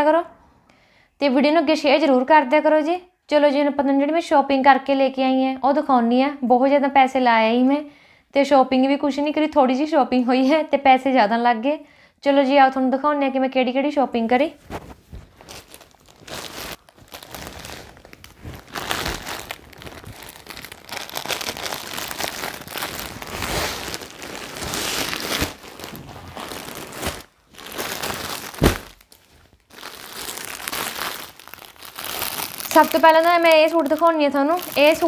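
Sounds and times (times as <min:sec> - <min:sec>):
plastic bag crinkling: 0:14.6 - 0:35.0.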